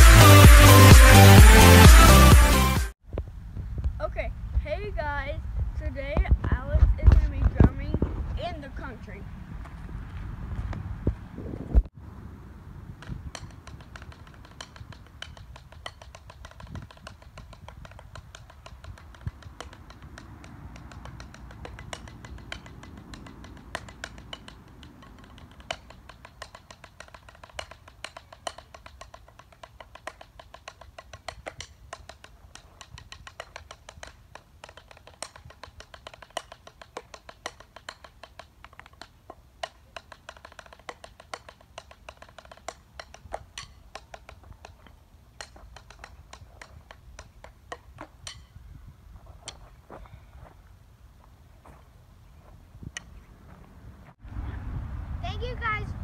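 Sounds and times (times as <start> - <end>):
drumsticks tapping: 13.0 - 48.5.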